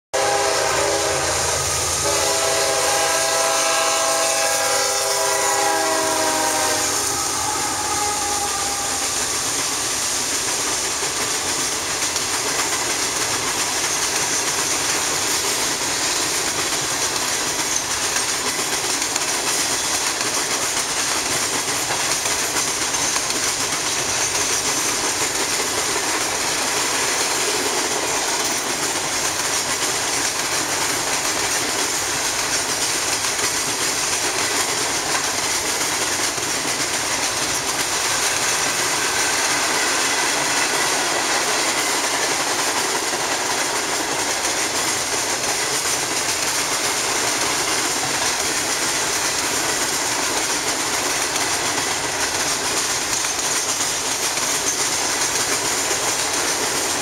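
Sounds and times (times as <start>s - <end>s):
locomotive horn blowing: 0.2s - 9.4s
train wheels rolling on rail: 0.2s - 57.0s.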